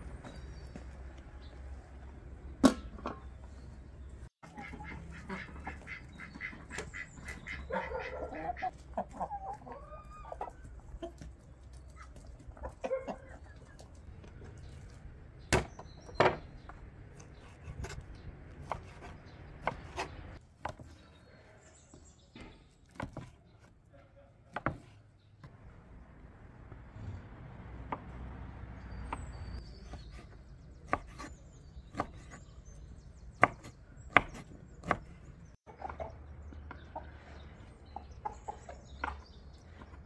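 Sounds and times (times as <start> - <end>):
chickens clucking: 4.4 - 14.9, 35.6 - 40.0.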